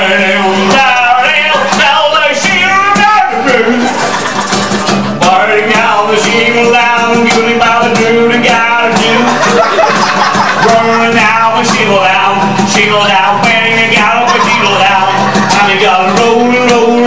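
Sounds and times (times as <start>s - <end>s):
cajon beat: 0.0s - 17.0s
strummed acoustic guitars: 0.0s - 17.0s
accordion: 3.3s - 17.0s.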